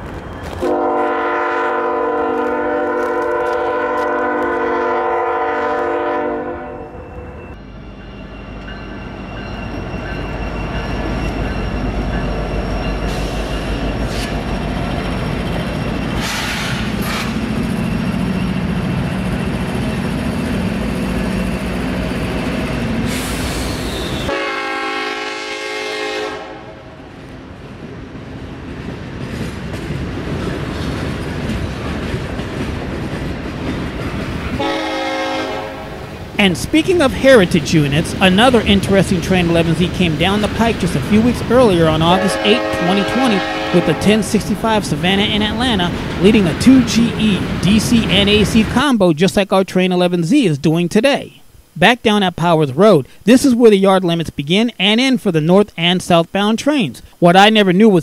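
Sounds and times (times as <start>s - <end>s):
locomotive air horn: 0.6s - 7.0s, 23.1s - 26.9s, 34.6s - 36.0s, 42.1s - 44.4s
locomotive engine rumble: 27.2s - 48.9s.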